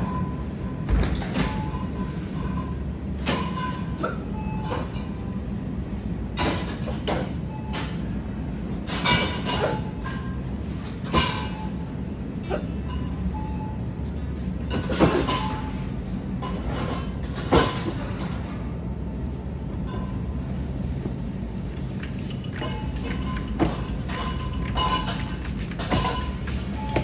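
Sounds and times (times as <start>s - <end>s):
shopping cart wheels rolling: 20.2s - 27.0s.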